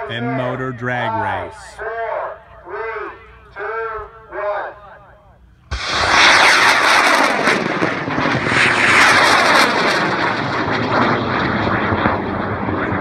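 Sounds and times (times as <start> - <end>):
rocket motors roaring: 5.7 - 13.0.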